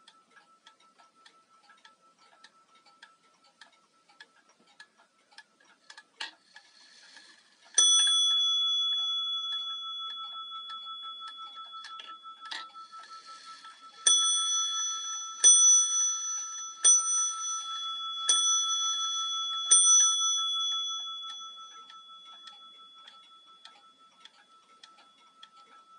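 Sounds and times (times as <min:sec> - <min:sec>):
clock mechanism clicks: 0:00.0 - 0:25.9
clock ticking: 0:00.0 - 0:25.9
clock bell striking: 0:07.8 - 0:24.6.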